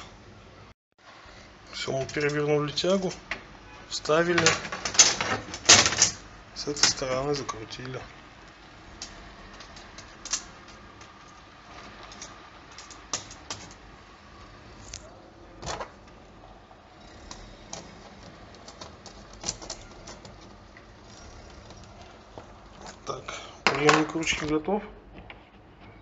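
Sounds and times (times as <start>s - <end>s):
small metal parts clicking: 8.9s - 13.9s, 17.1s - 22.1s.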